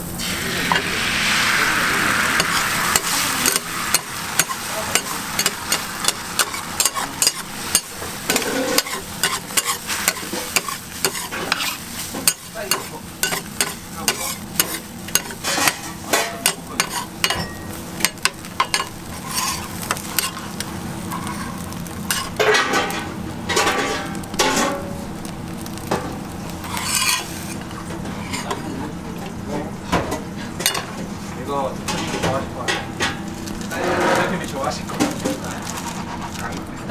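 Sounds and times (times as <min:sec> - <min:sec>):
egg sizzling: 0:00.0 - 0:29.5
metal spatulas clacking on griddle: 0:03.0 - 0:20.4, 0:22.1 - 0:24.8.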